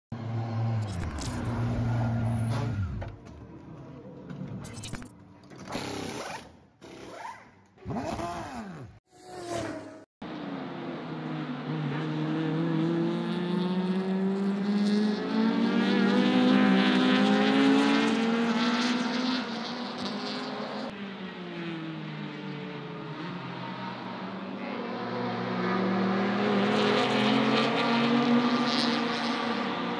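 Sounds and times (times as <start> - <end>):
race car engine at high revs: 7.1 - 29.9
race car engines revving and passing: 7.8 - 29.9.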